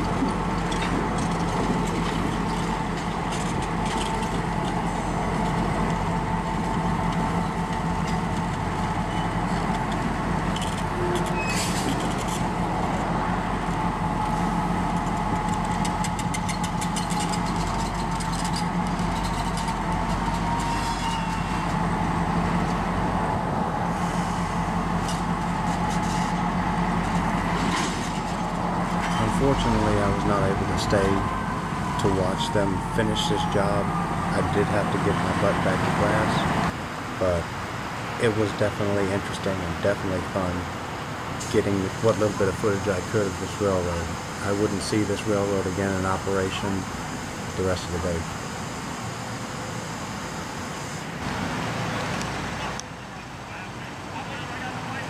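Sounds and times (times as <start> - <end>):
locomotive engine hum: 0.0 - 55.0
mid-pitched whine: 10.6 - 37.4.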